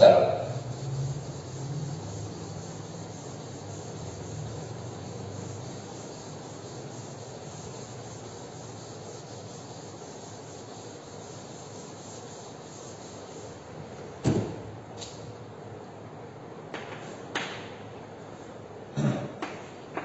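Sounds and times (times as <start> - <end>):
duster rubbing chalkboard: 0.0 - 15.2.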